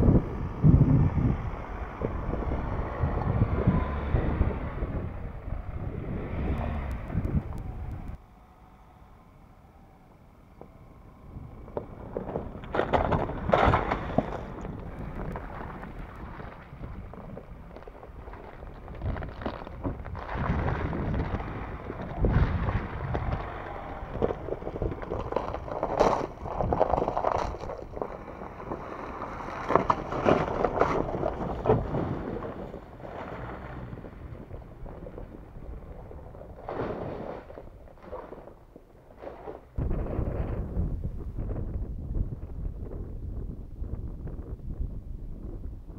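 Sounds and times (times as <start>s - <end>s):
truck engine under throttle: 0.0s - 8.2s, 10.9s - 45.9s
wind buffeting microphone: 0.0s - 8.2s, 10.6s - 45.9s
tyres splashing through mud: 11.9s - 39.8s.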